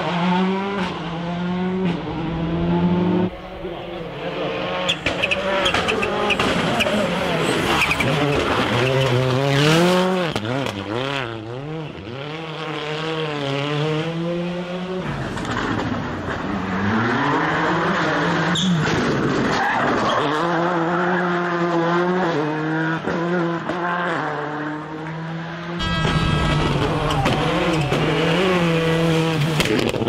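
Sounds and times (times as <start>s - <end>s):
rally car engines revving: 0.0s - 30.0s
tyre squeal and sliding: 4.8s - 9.8s, 18.5s - 20.3s.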